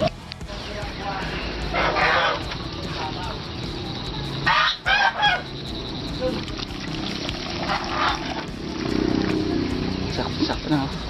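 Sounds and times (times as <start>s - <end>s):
ducks quacking: 1.6s - 3.3s, 4.4s - 8.5s.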